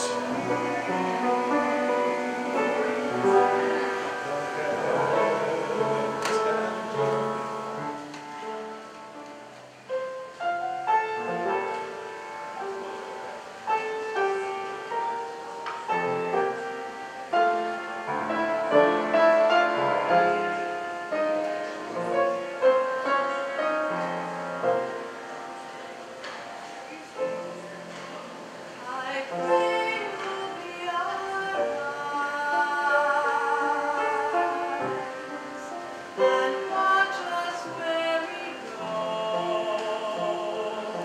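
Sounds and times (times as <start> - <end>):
church organ music: 0.0 - 28.5.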